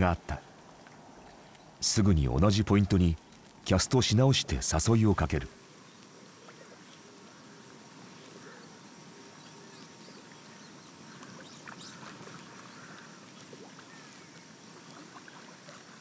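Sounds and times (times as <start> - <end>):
small splashes and ticks: 0.0 - 4.0, 5.6 - 16.0
water lapping: 6.2 - 16.0.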